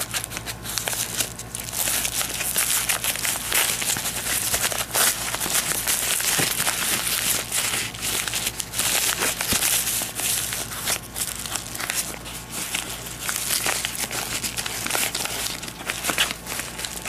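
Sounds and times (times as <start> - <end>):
paper envelope tearing: 0.0 - 17.0.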